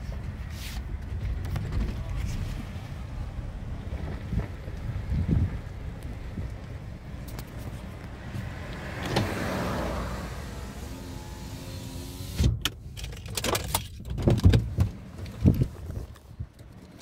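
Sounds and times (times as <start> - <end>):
car engine and road rumble: 0.0 - 17.0
knocks and rattles: 12.6 - 15.7.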